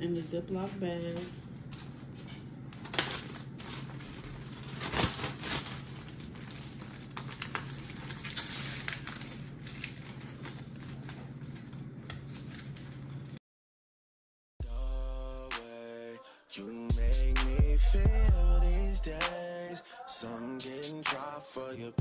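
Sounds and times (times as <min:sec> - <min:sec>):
plastic bag crinkling: 0:01.4 - 0:13.4.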